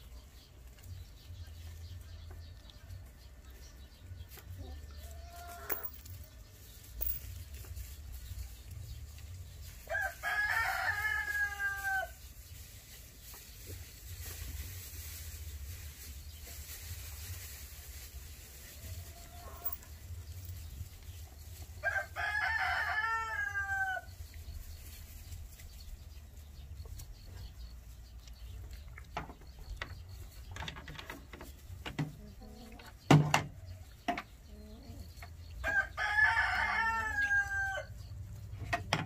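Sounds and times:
rooster crowing: 21.8 - 24.1, 35.6 - 37.9.

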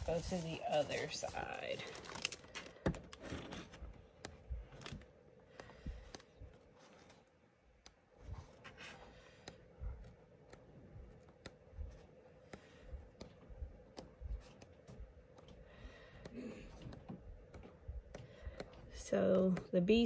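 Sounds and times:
cardstock sheets flipping: 0.0 - 5.1
faint steady hum: 0.0 - 20.0.

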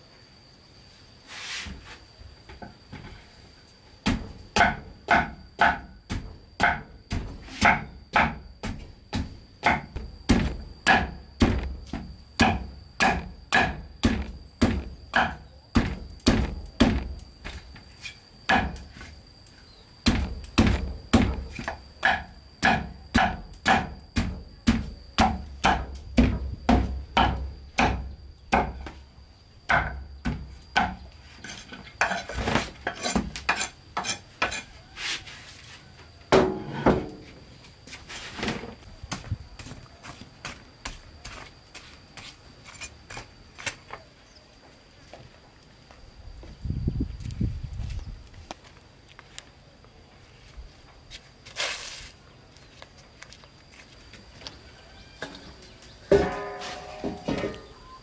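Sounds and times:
cleaver chopping on wooden board: 4.1 - 17.1.

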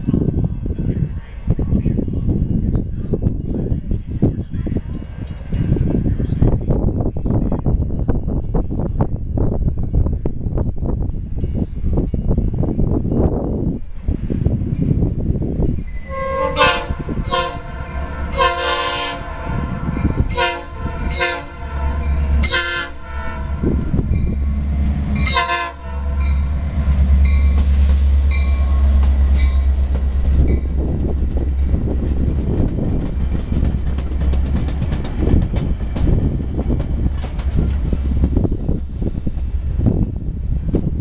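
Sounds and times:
diesel locomotive engine: 0.0 - 41.0
locomotive air horn blasts: 16.0 - 24.1, 25.1 - 26.6
train wheels clickety-clack: 27.2 - 38.6.

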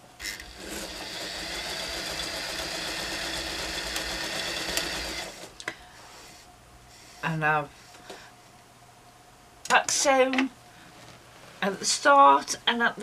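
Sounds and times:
sewing machine running: 0.2 - 5.6.

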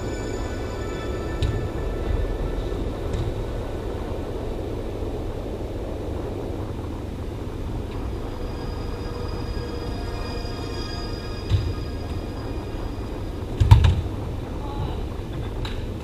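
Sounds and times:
indoor hall background rumble: 0.0 - 16.0.

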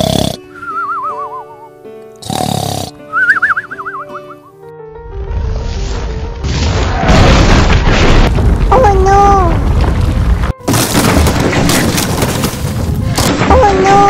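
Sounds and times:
deep rumbling boom: 5.0 - 8.9.

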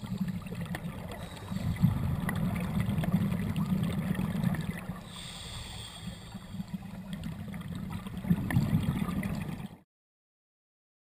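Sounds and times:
hissing breath through regulator: 0.0 - 2.1, 5.0 - 7.0
bubbling exhaust underwater: 0.0 - 9.8.

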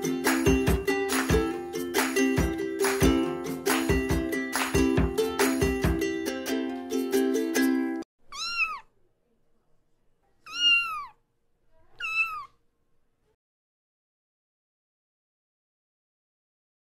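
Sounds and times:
plucked-string background music: 0.0 - 8.0
cat meowing: 8.3 - 8.9, 10.4 - 11.2, 11.8 - 12.6.

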